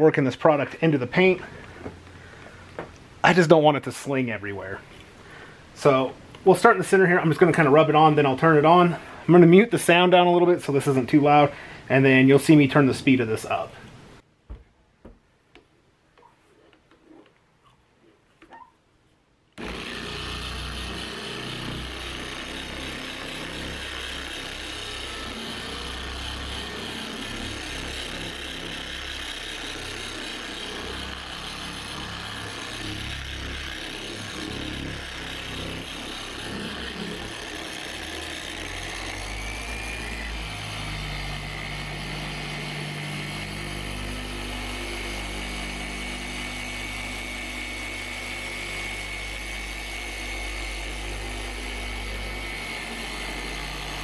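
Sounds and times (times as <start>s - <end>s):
electric polisher whining: 1.1s - 3.0s, 19.6s - 54.0s.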